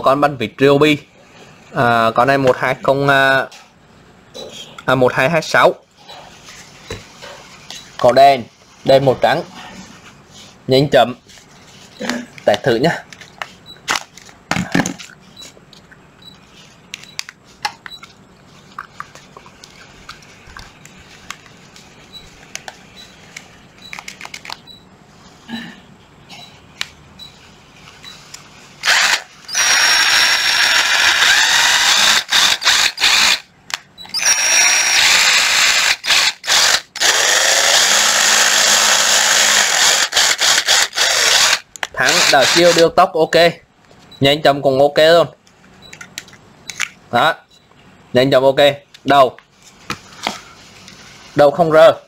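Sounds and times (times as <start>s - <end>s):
scattered clicks: 19.1s - 24.7s
cordless driver motor running: 28.8s - 33.4s, 34.2s - 42.8s.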